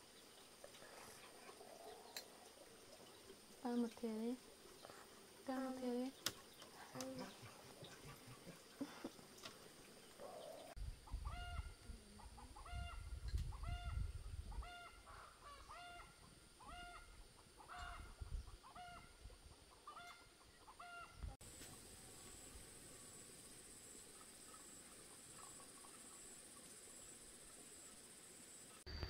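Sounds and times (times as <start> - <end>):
fowl honking calls: 14.6 - 19.2, 19.8 - 21.2.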